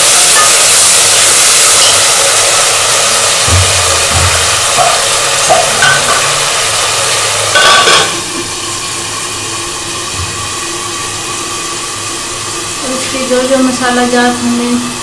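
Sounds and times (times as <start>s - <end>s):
vegetables sizzling in oil: 0.0s - 15.0s
metal lid clanking onto pot: 3.4s - 6.6s, 7.5s - 8.3s.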